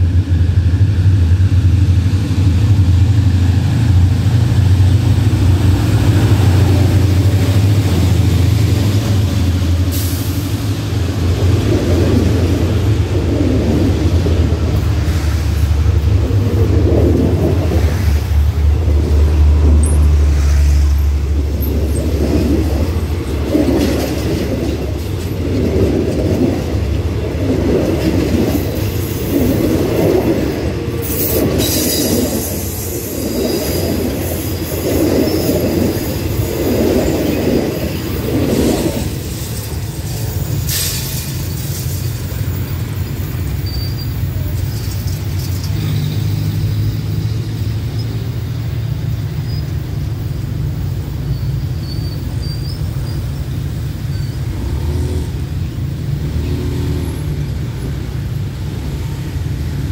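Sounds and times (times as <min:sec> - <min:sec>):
locomotive engine droning: 0:00.0 - 0:59.9
train wheels over rails: 0:00.0 - 0:59.9.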